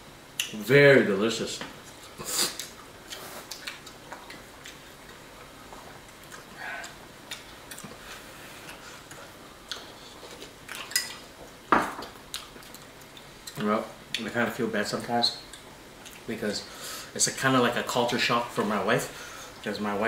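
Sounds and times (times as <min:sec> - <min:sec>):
quiet eating: 0:01.6 - 0:14.3, 0:15.4 - 0:16.9.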